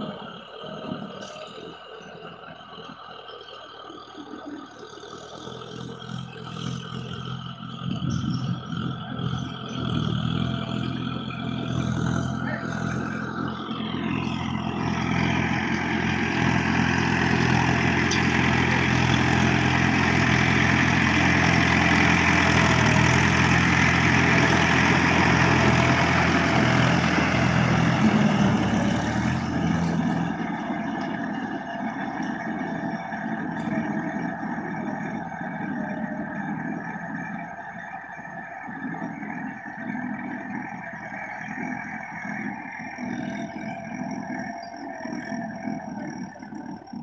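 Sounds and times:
tractor diesel engine running: 0.0 - 47.0.

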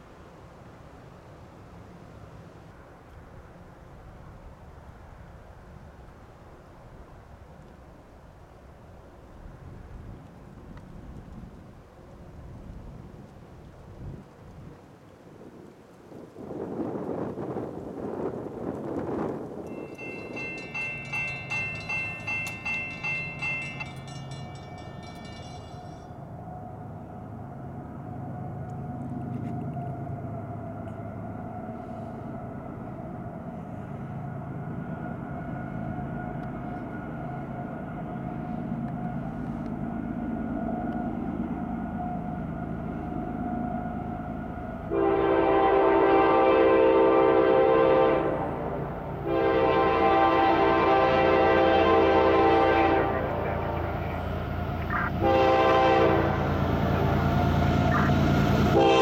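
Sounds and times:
low hum of locomotive: 0.0 - 59.0
low rumble of train: 0.0 - 59.0
railroad crossing bell ringing: 19.7 - 26.4, 48.7 - 59.0
locomotive air horn: 44.9 - 54.3, 55.0 - 57.1, 58.6 - 59.0.

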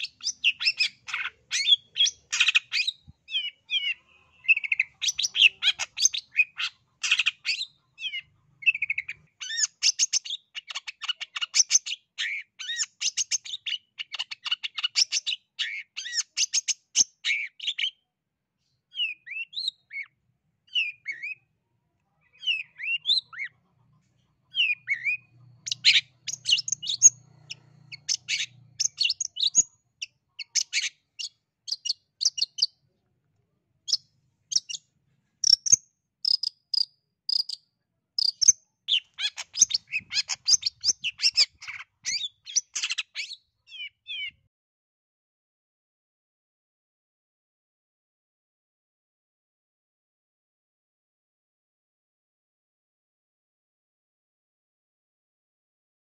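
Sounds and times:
shrike chattering song: 0.0 - 17.8, 24.4 - 32.7, 35.4 - 37.6, 38.2 - 44.3.

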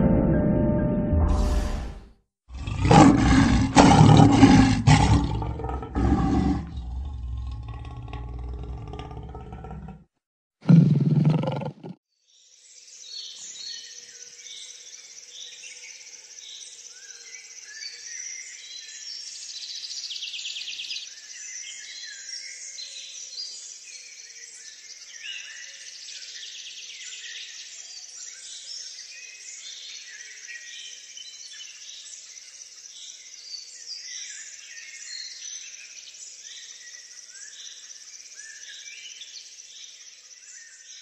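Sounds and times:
small birds chirping and singing: 10.8 - 41.0.

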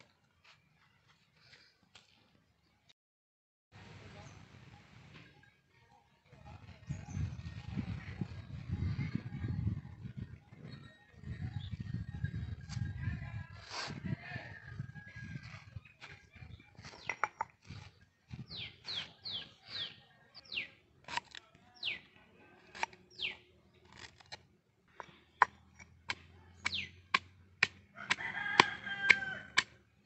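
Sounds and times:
bird high calls: 26.6 - 27.0
rooster crowing: 27.9 - 29.6.

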